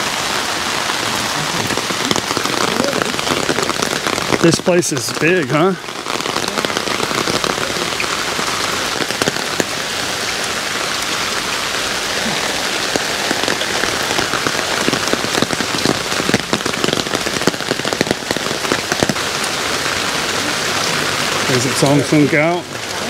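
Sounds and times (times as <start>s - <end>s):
rain on hard surfaces: 0.0s - 23.0s
raindrops ticking: 0.0s - 23.0s.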